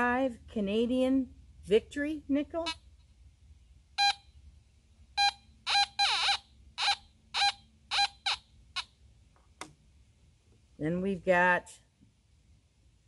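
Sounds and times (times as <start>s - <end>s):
metal detector short beeps: 4.0s - 4.3s, 5.2s - 8.5s.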